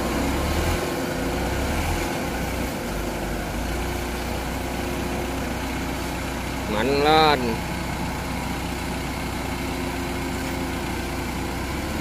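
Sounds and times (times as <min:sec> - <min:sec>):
harvester and cart engines running: 0:00.0 - 0:12.0.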